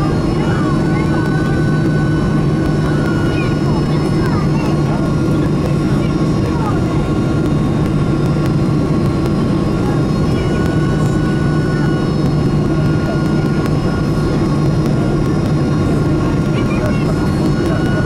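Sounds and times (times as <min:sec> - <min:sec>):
jet engines roaring: 0:00.0 - 0:18.0.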